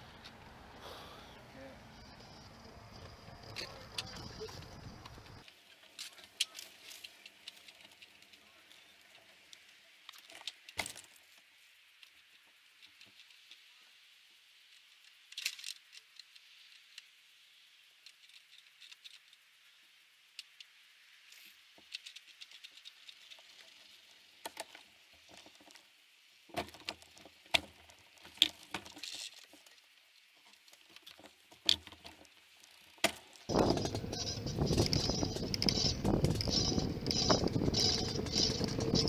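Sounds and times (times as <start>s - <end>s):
faint hiss: 0.0s - 2.8s, 4.9s - 31.7s
light clicks and rattles: 30.4s - 39.0s.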